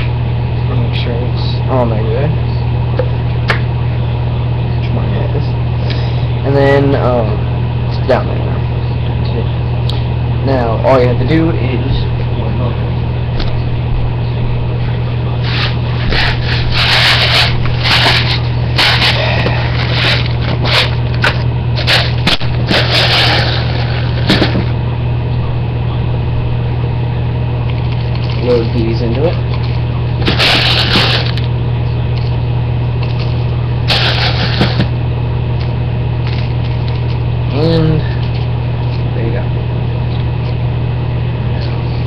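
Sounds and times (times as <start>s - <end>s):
steady low hum: 0.0s - 42.0s
plastic parts rustling and scraping: 15.4s - 24.7s, 29.6s - 31.5s, 33.0s - 34.9s.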